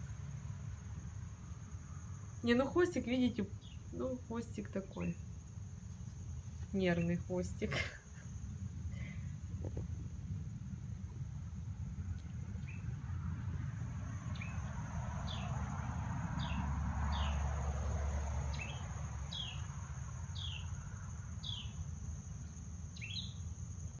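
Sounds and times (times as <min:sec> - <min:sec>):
insect drone: 0:00.0 - 0:24.0
bird chirping: 0:12.6 - 0:13.0, 0:14.3 - 0:15.6, 0:18.5 - 0:19.7, 0:20.3 - 0:20.8, 0:21.4 - 0:21.8, 0:22.5 - 0:23.5.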